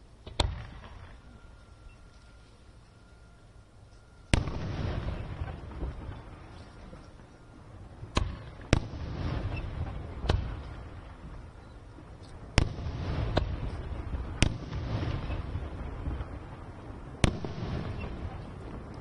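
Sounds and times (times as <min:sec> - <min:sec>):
firework bangs: 0:00.2 - 0:01.4, 0:04.3 - 0:07.0, 0:08.0 - 0:11.7, 0:12.4 - 0:19.0.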